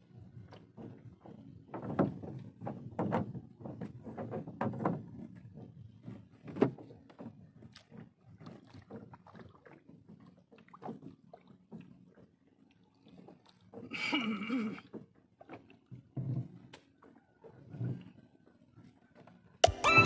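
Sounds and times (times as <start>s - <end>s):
paddle knocking on wooden boat: 0.2s - 12.4s.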